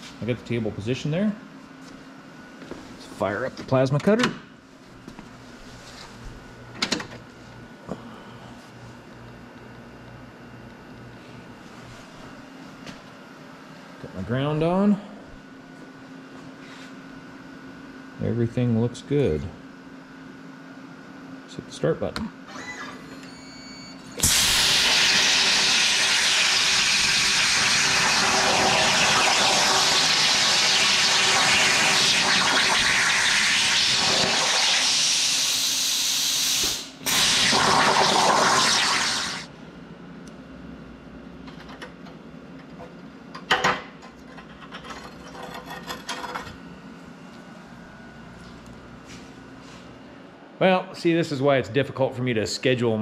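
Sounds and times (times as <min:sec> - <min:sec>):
plasma cutter hissing: 0:24.2 - 0:39.5.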